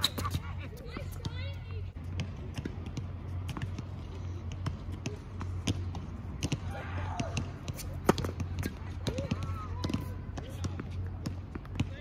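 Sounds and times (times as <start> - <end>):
tennis balls bouncing: 0.0 - 12.0.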